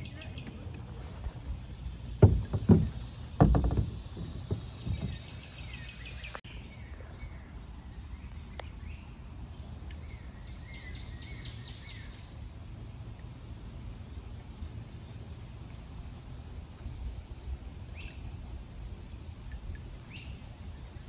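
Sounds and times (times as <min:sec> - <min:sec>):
outdoor background noise: 0:00.0 - 0:21.0
songbird chirping: 0:00.0 - 0:21.0
dull low thumps: 0:01.6 - 0:05.7.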